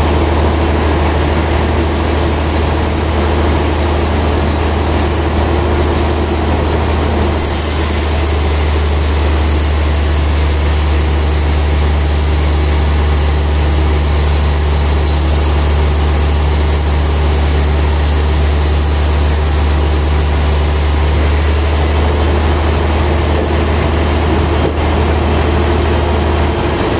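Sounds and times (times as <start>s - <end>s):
band saw droning: 0.0s - 26.9s
saw blade hissing through log: 1.4s - 21.9s.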